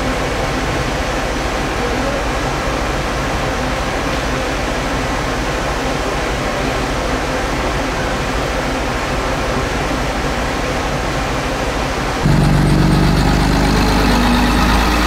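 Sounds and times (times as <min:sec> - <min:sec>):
train rushing noise: 0:12.0 - 0:15.0.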